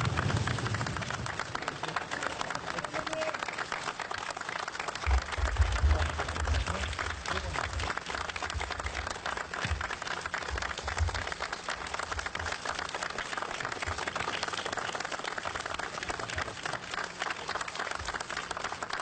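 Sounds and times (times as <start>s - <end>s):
low rumble: 0.0s - 2.0s
crowd applauding: 0.0s - 19.0s.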